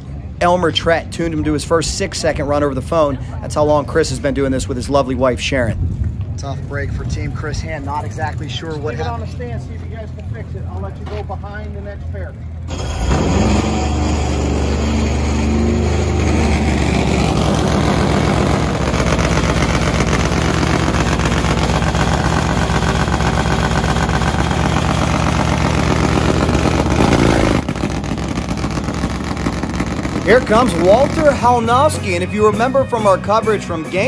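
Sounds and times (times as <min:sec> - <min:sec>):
motorcycle engine idling loudly: 0:12.7 - 0:32.1.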